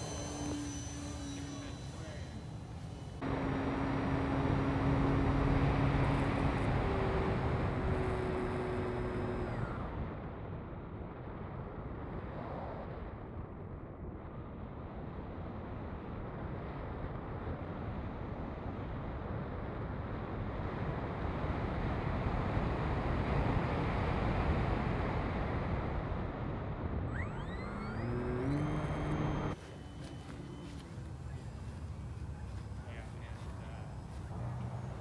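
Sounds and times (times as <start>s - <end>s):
electric motor whine: 0.0s - 9.9s, 27.1s - 35.0s.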